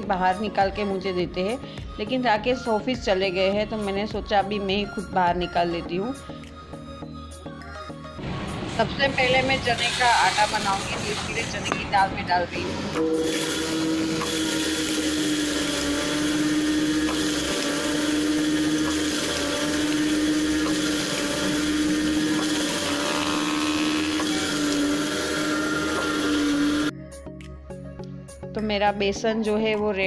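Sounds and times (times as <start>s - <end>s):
electric flour mill grinding: 12.7s - 26.9s.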